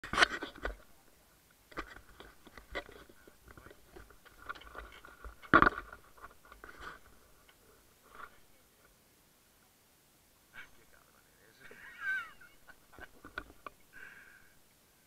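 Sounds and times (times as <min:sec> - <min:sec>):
scuba gear clattering: 0:00.0 - 0:00.9, 0:01.7 - 0:07.6.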